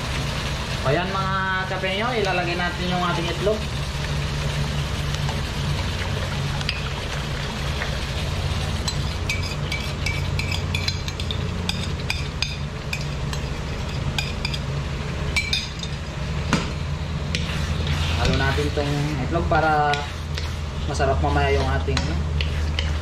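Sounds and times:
steady low hum: 0.0s - 23.0s
metal utensil clinking on ceramic bowl: 8.9s - 14.6s.

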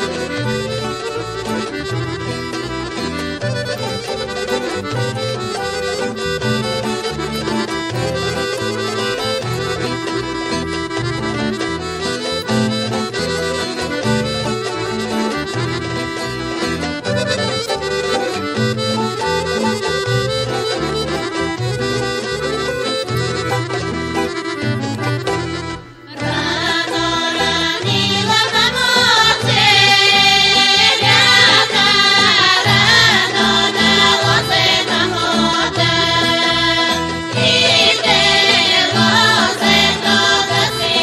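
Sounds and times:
folk dance music: 0.0s - 41.0s
person singing: 26.1s - 41.0s.

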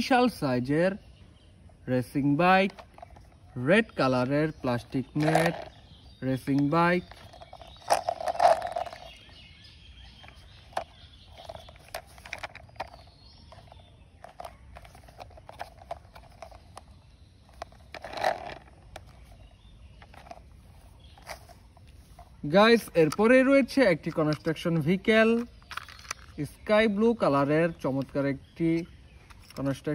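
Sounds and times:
plastic toy clicks and knocks: 5.0s - 5.8s, 10.2s - 16.9s, 24.0s - 26.4s
plastic scraping bursts: 17.5s - 19.4s.

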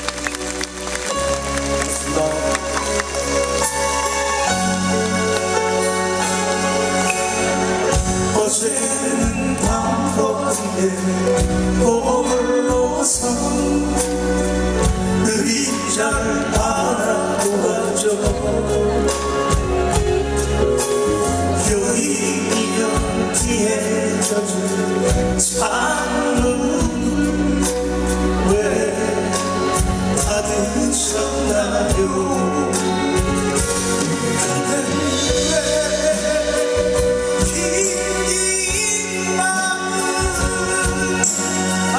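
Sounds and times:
bass guitar: 0.0s - 41.9s
men singing: 7.1s - 14.6s, 15.2s - 19.2s, 21.6s - 41.9s.

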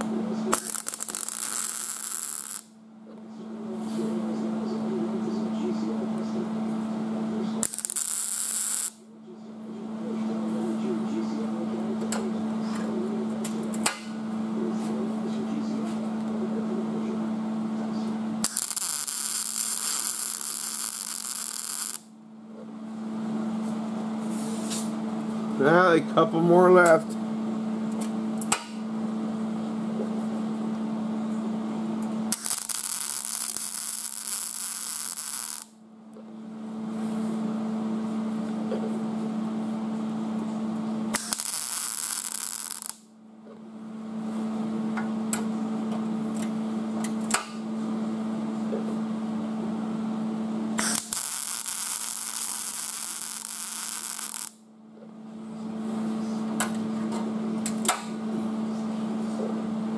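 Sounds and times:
welding arc crackle: 0.0s - 2.8s, 7.6s - 9.0s, 18.4s - 22.1s, 32.3s - 35.8s, 41.1s - 43.1s, 50.8s - 54.6s
steady electrical hum: 0.0s - 59.9s.

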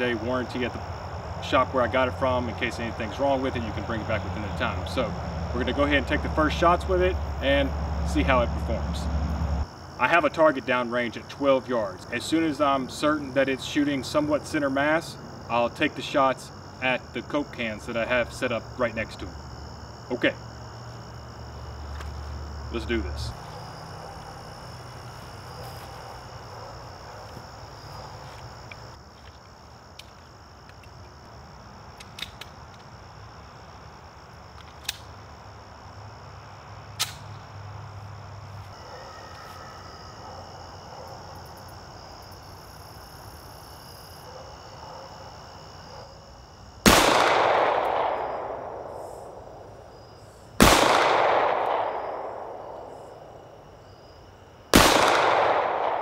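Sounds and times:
high insect hum: 0.0s - 56.0s
pistol shots with echo: 46.8s - 49.4s, 50.6s - 52.8s, 54.7s - 56.0s.

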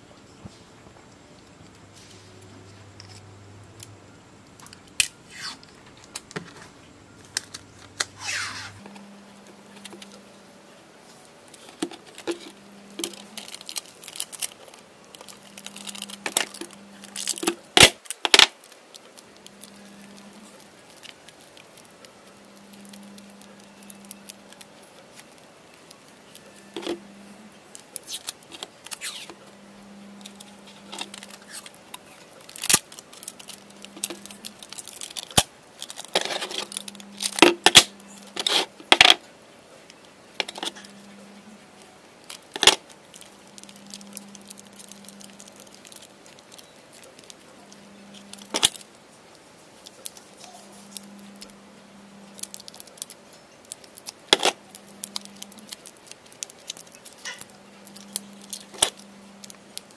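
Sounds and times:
faint low hum: 0.0s - 59.9s
tape ripping and crinkling: 4.7s - 8.8s, 11.5s - 27.0s, 27.7s - 29.4s, 30.2s - 39.0s, 41.8s - 51.5s, 52.3s - 59.9s.

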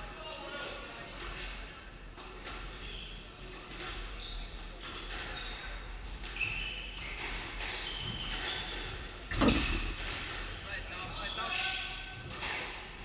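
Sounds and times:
shoes squeaking on floor: 2.7s - 12.0s.

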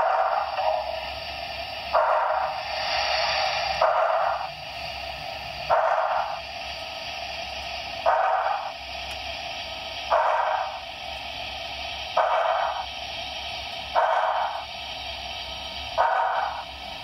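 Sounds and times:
model locomotive steam hiss: 0.0s - 17.0s
puffs of exhaust: 0.0s - 17.0s.

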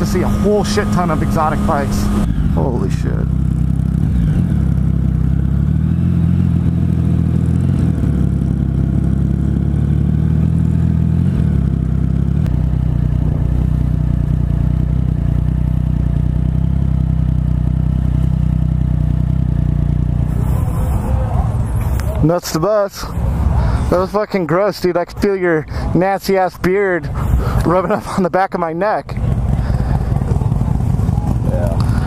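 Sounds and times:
motorcycle engine running: 0.0s - 32.0s.

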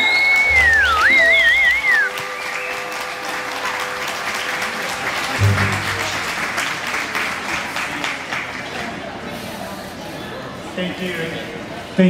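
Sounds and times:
audience applauding: 0.0s - 8.9s
music: 0.4s - 2.1s, 5.4s - 6.4s
short low boom: 0.5s - 1.9s, 5.4s - 6.5s.

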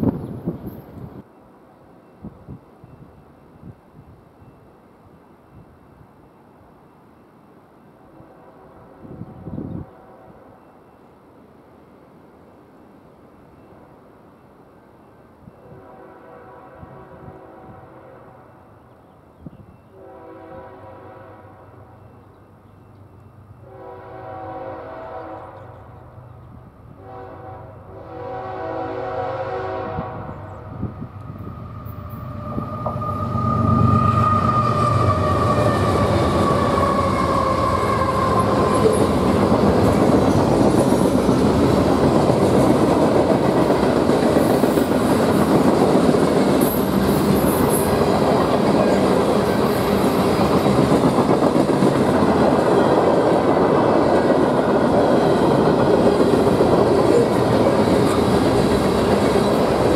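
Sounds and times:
train air horn blasts: 8.0s - 10.7s, 15.6s - 18.8s, 19.9s - 22.2s, 23.6s - 25.7s, 26.9s - 39.6s
train wheels rumbling on rails: 30.2s - 59.9s.

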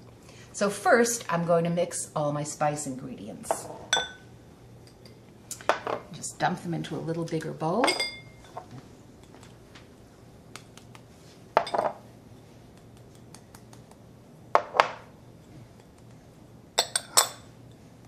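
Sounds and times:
glass bowls clinking: 3.9s - 4.2s, 7.8s - 8.7s, 11.6s - 12.0s, 16.8s - 17.5s.

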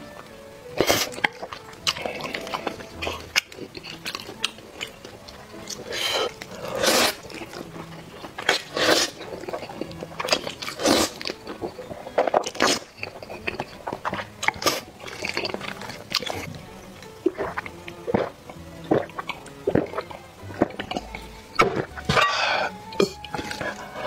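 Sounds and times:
wet chewing and smacking: 0.0s - 24.0s
person slurping noodles: 0.8s - 4.9s, 5.7s - 7.6s, 8.2s - 11.2s, 12.4s - 16.6s, 17.3s - 24.0s.

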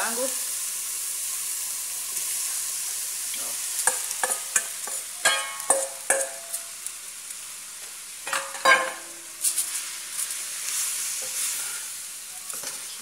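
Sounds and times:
chicken sizzling in a pot: 0.0s - 13.0s
spoon stirring and scraping: 3.8s - 6.7s, 8.3s - 13.0s.

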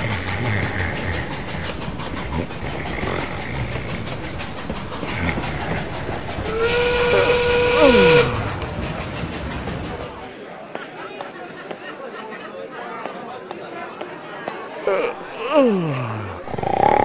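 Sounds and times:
steam train on rails: 0.0s - 17.0s
steam train whistle: 6.4s - 8.7s.

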